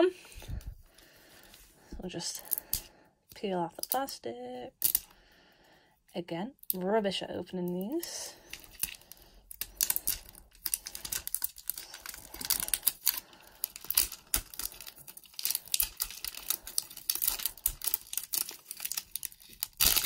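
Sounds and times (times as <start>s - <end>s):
plastic wrap crinkling: 7.8s - 20.0s.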